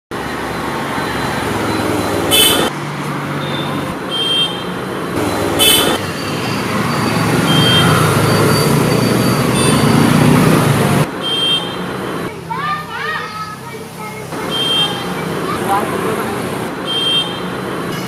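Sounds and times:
road traffic noise: 0.1s - 18.0s
sharp bursts of noise: 0.2s - 12.3s
vehicle horn beeps: 1.0s - 2.7s, 3.4s - 10.4s, 11.2s - 11.9s, 14.4s - 15.2s, 16.8s - 18.0s.

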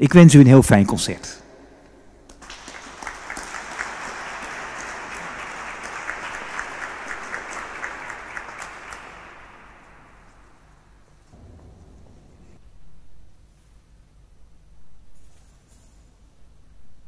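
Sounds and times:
audience applauding: 2.3s - 11.2s.

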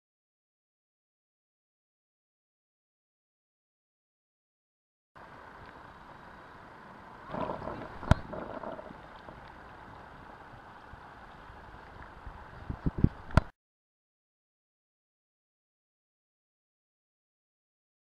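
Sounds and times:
river water rushing: 5.2s - 13.4s.

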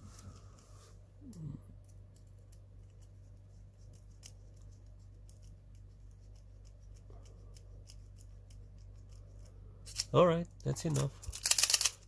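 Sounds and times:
low steady hum: 0.0s - 12.0s
screwdriver clicks and scratches: 10.9s - 12.0s.

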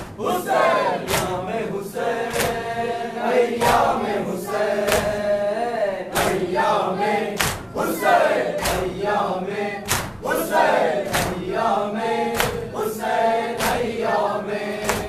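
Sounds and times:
men chanting a lament: 0.0s - 15.0s
hands slapping on chests: 1.0s - 1.5s, 2.3s - 2.6s, 4.8s - 5.2s, 6.1s - 6.5s, 7.3s - 9.1s, 9.8s - 11.5s, 12.3s - 12.8s, 13.6s - 14.0s, 14.8s - 15.0s.

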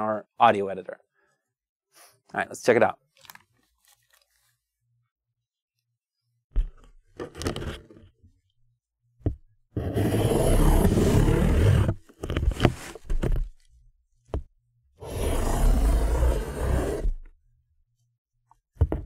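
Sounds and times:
fingertip scraping cardboard: 9.8s - 13.5s, 15.0s - 17.3s.

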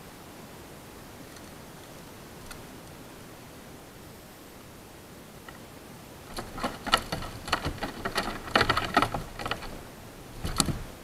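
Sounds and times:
clicks and taps on kayak: 6.3s - 9.8s, 10.4s - 11.0s.

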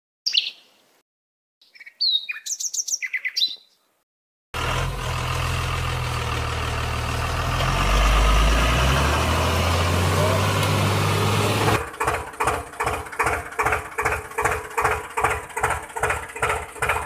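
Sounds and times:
birds chirping: 0.2s - 1.0s, 1.6s - 4.0s
truck engine hum: 4.6s - 17.0s.

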